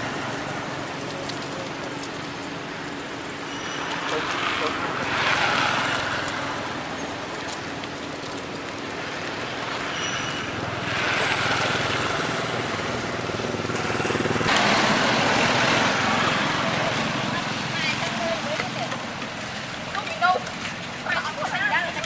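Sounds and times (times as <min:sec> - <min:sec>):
traffic engine drone: 0:00.0 - 0:22.0
faint high squeaks: 0:03.5 - 0:04.2, 0:09.9 - 0:10.5.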